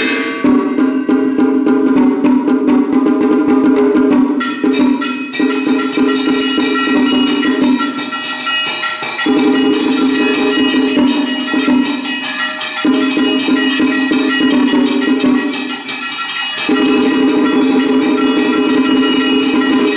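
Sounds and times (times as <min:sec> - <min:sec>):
percussion: 0:00.0 - 0:19.9
bells: 0:04.4 - 0:19.9
ceremonial melody: 0:04.4 - 0:19.9.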